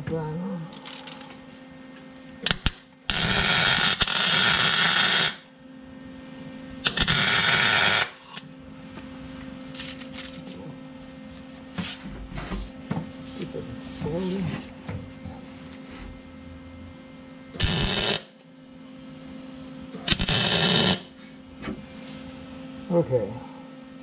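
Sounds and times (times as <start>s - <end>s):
welding arc crackling and hissing: 2.4s - 5.5s, 6.8s - 8.4s, 17.6s - 18.3s, 20.0s - 21.1s
sharp welding spits: 6.9s - 8.1s, 17.6s - 18.3s, 20.1s - 21.1s.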